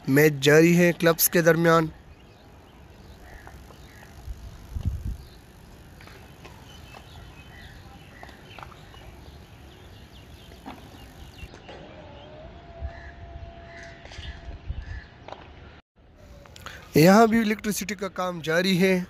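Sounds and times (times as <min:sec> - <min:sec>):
wind rumble on microphone: 0:03.2 - 0:05.5, 0:12.3 - 0:15.2.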